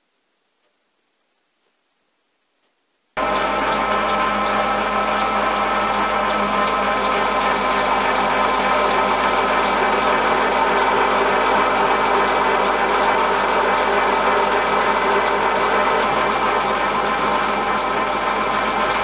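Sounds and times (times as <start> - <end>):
milling machine motor whine: 3.2 - 19.0
high-pitched cutting squeal: 16.0 - 19.0.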